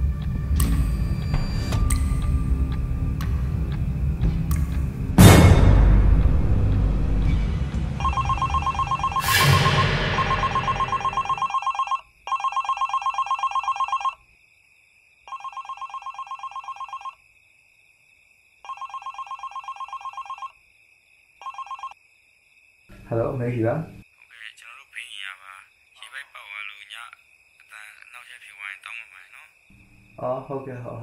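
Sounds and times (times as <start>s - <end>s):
loud boom hits: 5.2s - 6.7s
mobile phone ringing: 8.0s - 14.2s, 15.3s - 17.2s, 18.7s - 20.6s, 21.4s - 22.0s.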